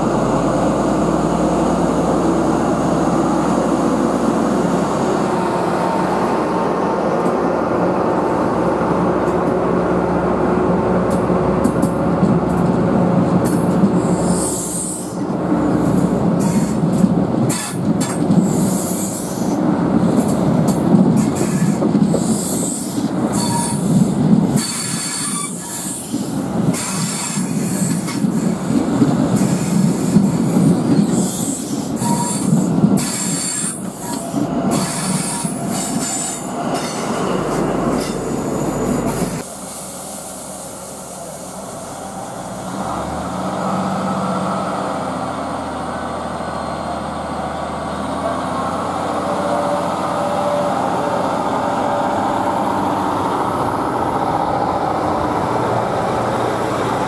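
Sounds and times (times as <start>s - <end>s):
train wheels squealing and clattering: 13.4s - 39.4s.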